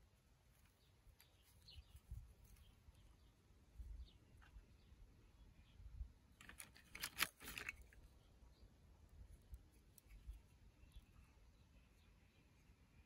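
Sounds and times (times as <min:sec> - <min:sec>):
plastic toy pieces clicking and rustling: 0:06.4 - 0:08.0.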